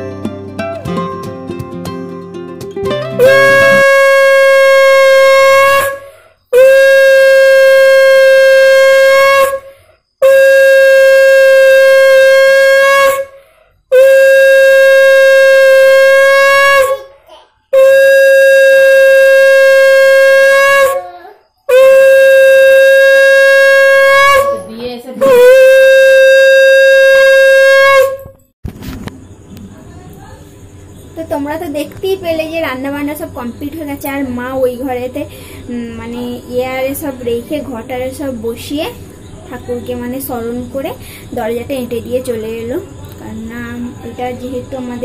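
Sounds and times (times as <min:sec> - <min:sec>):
conch shell blasts: 0:03.2 - 0:17.2, 0:17.8 - 0:21.1, 0:21.7 - 0:28.4
person breathing: 0:06.0 - 0:06.5, 0:13.4 - 0:13.8, 0:35.3 - 0:35.7, 0:41.0 - 0:41.4.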